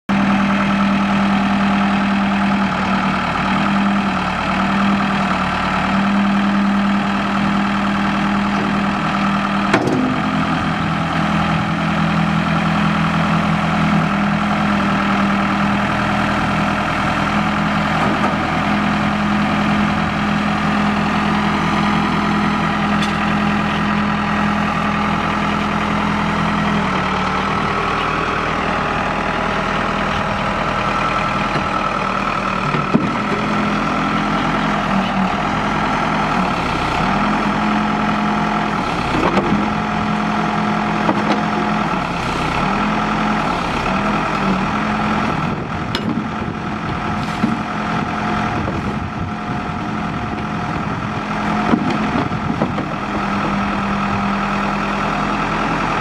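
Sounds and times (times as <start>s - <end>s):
diesel engine idling: 0.1s - 56.0s.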